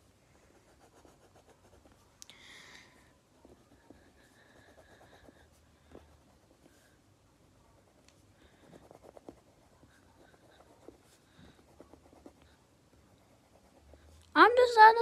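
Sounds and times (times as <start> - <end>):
pencil scratching on paper: 0.4 - 2.1, 3.3 - 7.0, 7.6 - 14.2.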